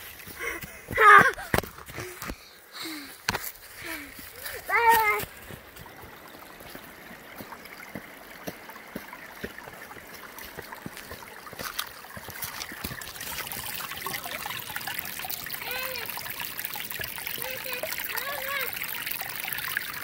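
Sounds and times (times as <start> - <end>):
water trickles and droplet splashes: 0.0 - 20.0
waterfall rushing: 4.5 - 16.3, 17.2 - 18.8.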